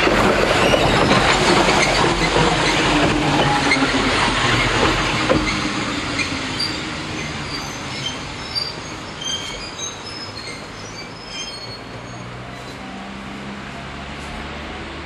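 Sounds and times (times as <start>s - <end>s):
train wheel and rail rumble: 0.0s - 15.0s
high-pitched wheel squeals: 4.6s - 12.8s.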